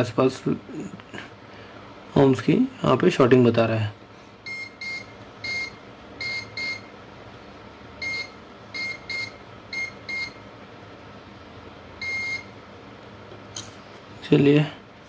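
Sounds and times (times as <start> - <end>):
multimeter continuity beeps: 4.4 - 6.9, 8.0 - 10.4, 12.0 - 12.6.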